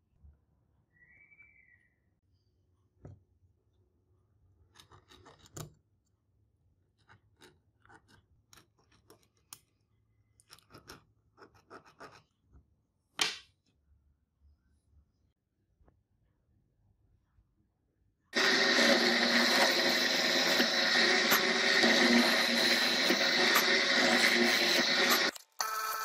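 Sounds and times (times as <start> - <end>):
pen scratching on wood: 11.4 - 12.3.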